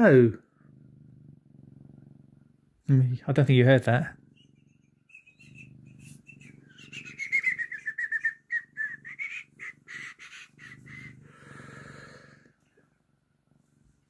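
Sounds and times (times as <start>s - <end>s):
cat purring: 0.0s - 14.0s
bird chirping: 4.1s - 11.2s.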